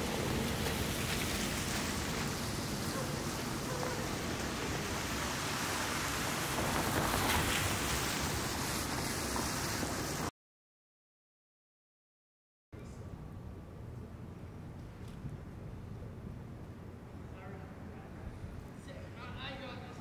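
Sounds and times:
traffic on slushy pavement: 0.0s - 10.3s.

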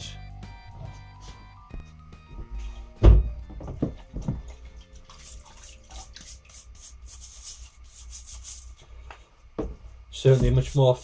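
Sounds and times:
water sloshing: 3.7s - 6.6s
rapid scrubbing strokes: 5.1s - 8.8s, 10.2s - 11.0s.

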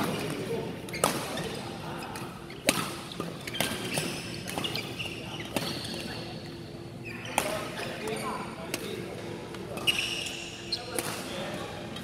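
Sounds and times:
rackets hitting shuttlecock: 0.0s - 4.8s, 5.5s - 6.1s, 7.3s - 11.4s
shoe squeaks on court floor: 2.5s - 8.5s, 9.8s - 11.0s.

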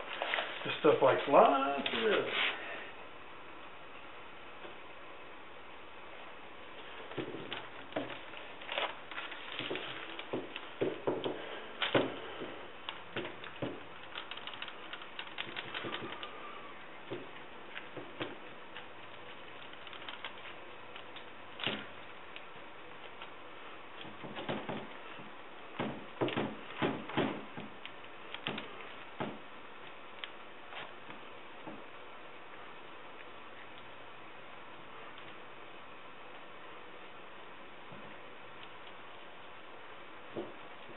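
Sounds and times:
gloved hands clicking and tapping fiberglass: 7.1s - 16.4s, 17.0s - 23.4s, 24.0s - 31.8s.

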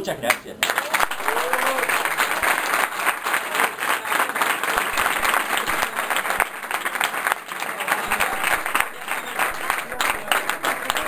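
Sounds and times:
people applauding: 0.2s - 11.0s.

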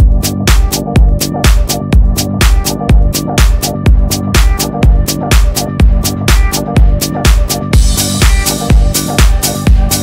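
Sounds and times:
hi-hats: 0.0s - 10.0s
kick drum: 0.0s - 10.0s.

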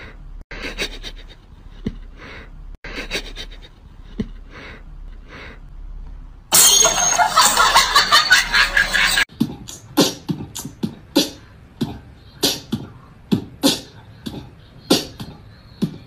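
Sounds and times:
breathy puffs: 0.0s - 5.7s.

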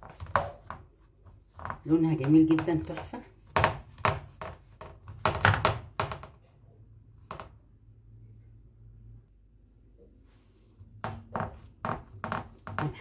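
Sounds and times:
hands patting dough in a metal tray: 0.0s - 6.4s, 10.8s - 13.0s
faint low hum: 6.4s - 11.0s.

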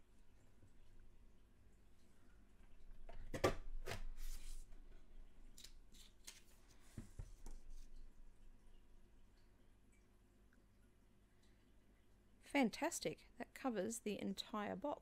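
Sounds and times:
paper rustling: 5.6s - 7.9s.

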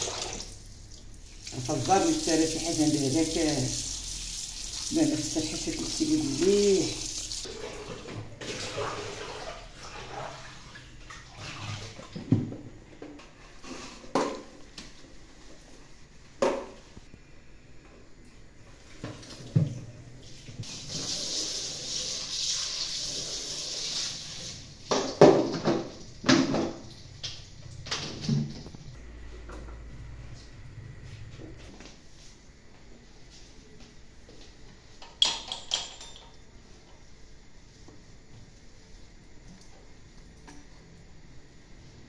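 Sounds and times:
tap water running into colander: 0.0s - 12.5s, 20.4s - 28.7s
dishes clattering: 35.0s - 36.4s.

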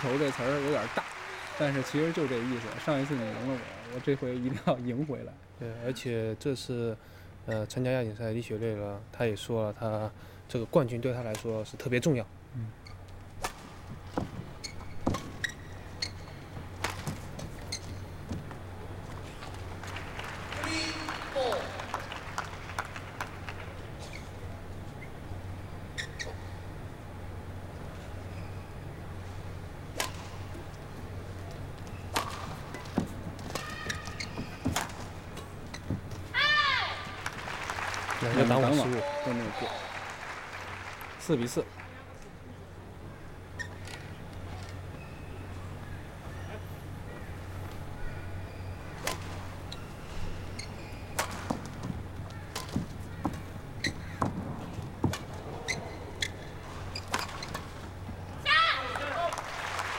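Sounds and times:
low arena hum: 0.0s - 59.9s
shoes squeaking on court: 12.8s - 19.7s, 23.9s - 26.7s, 28.0s - 37.2s, 43.4s - 45.8s, 46.8s - 58.4s
racket hitting shuttlecock: 29.9s - 30.4s, 32.0s - 35.2s.

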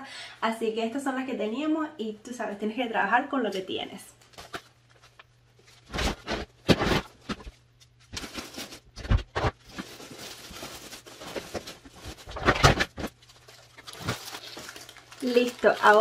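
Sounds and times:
rustling: 4.3s - 16.0s
plastic bins clunking: 5.8s - 14.7s.

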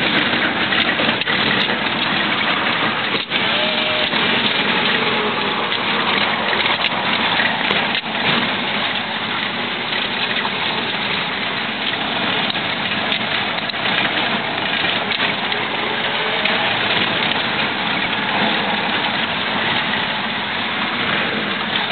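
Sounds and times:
car engine: 0.0s - 21.9s
tyres on gravel: 0.0s - 21.9s.

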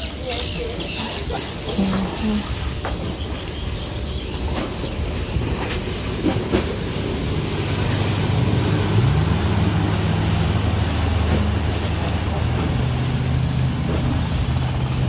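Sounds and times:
outboard motors running: 0.0s - 15.0s
water churning: 0.0s - 15.0s.

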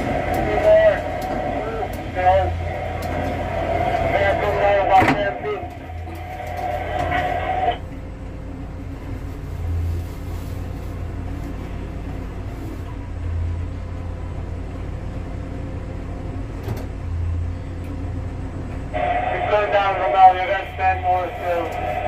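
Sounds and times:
higher steady tone: 0.0s - 8.5s, 18.9s - 22.0s
low machine hum: 0.0s - 22.0s.

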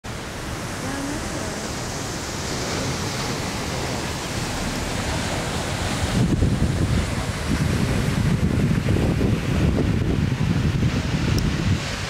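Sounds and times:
waterfall rushing into pool: 0.0s - 12.0s.

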